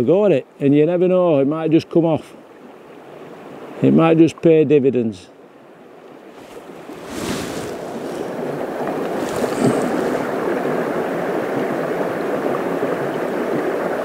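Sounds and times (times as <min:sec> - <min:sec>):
river rushing over stones: 0:06.2 - 0:14.0.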